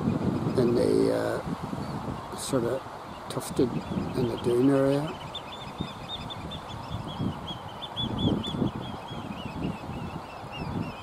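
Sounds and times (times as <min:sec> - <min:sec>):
shrill piping bird calls: 0:03.1 - 0:11.0.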